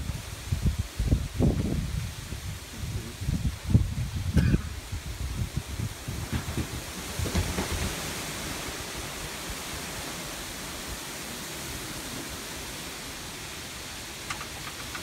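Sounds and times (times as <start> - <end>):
wind hitting microphone: 0.0 - 8.6
wind and rain in trees: 0.0 - 15.0.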